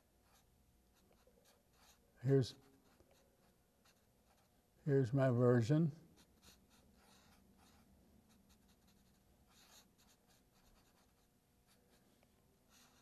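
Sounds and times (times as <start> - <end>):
marker scratching on paper: 0.2 - 4.5, 6.2 - 12.0, 12.7 - 13.0.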